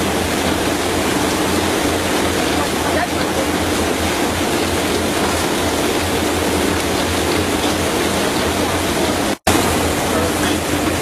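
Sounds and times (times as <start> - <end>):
constant hum: 0.0 - 11.0
potato washing machine running: 0.0 - 11.0.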